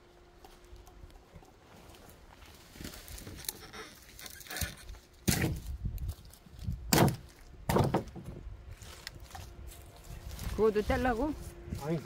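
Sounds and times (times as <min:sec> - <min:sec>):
heavy wooden log thunks: 0:06.9 - 0:08.4.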